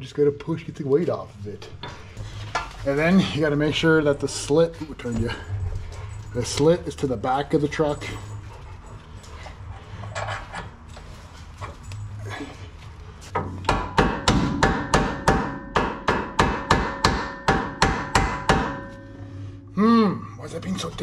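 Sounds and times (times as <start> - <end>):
hammer striking metal with ringing: 13.4 - 19.7.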